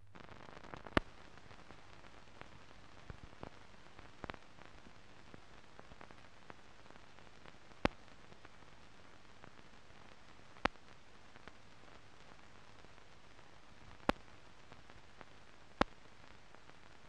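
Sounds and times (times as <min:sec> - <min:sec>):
film hiss: 0:00.0 - 0:17.0
faint clicks: 0:02.4 - 0:06.6, 0:07.7 - 0:08.1, 0:10.6 - 0:11.6, 0:13.8 - 0:17.0.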